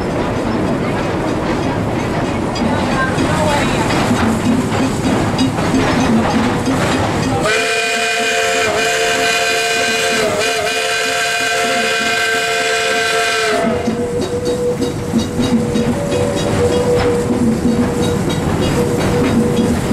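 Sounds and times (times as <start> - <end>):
train running on rails: 0.0 - 19.9
steam locomotive chime whistle: 7.3 - 19.8.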